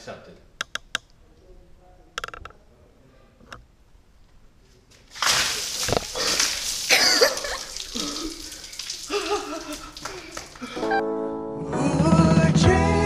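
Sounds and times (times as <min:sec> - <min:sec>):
water splashing down: 0:05.1 - 0:11.0.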